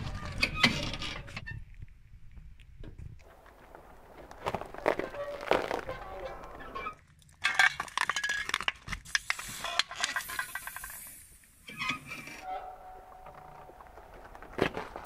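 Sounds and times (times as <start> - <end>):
corn cob crackling: 3.2 - 9.5
metal cans crunching: 3.5 - 10.9, 13.2 - 15.0
can bursting with hiss: 9.0 - 11.8.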